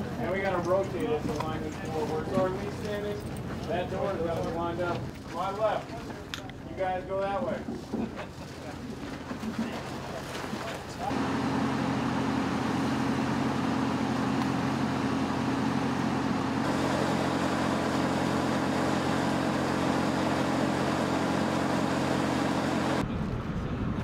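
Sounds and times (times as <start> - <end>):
engine-driven equipment humming: 11.0 - 24.0.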